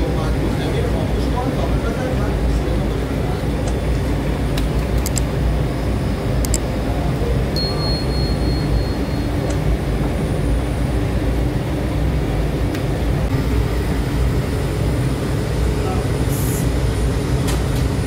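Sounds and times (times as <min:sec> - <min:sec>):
bread machine mechanical drone: 0:00.0 - 0:18.0
sharp clicks: 0:04.6 - 0:05.3, 0:06.4 - 0:06.6
thin high whine: 0:06.8 - 0:17.1.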